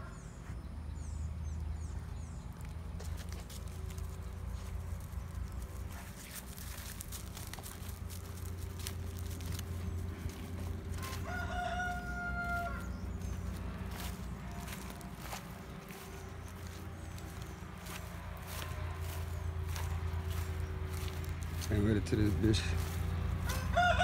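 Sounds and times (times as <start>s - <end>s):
low steady hum: 0.0s - 23.8s
rooster crowing: 10.4s - 14.1s, 23.4s - 24.0s.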